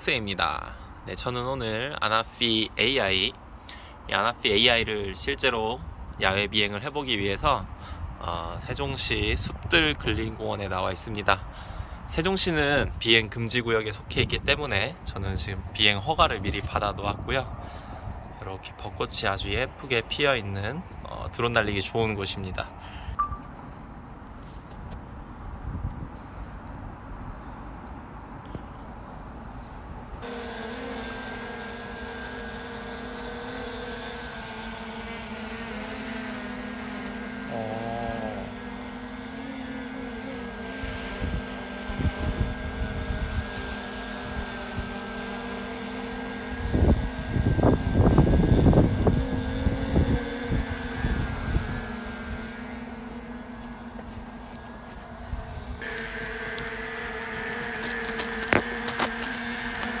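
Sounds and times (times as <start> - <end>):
wind buffeting microphone: 25.3 - 27.4, 40.5 - 45.3, 46.5 - 52.5
drone propellers whining: 28.4 - 60.0
sharp clicks: 57.4 - 60.0.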